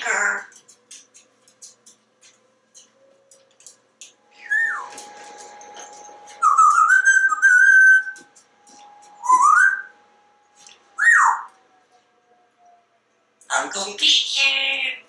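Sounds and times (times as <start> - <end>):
parrot whistling: 4.3 - 5.1, 5.8 - 8.3, 9.1 - 10.0, 11.0 - 11.5.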